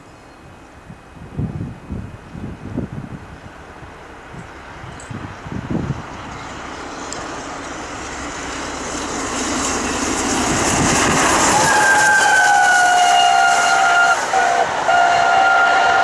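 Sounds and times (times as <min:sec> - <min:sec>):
steam locomotive working hard: 0:02.8 - 0:16.0
locomotive chime whistle: 0:11.5 - 0:16.0.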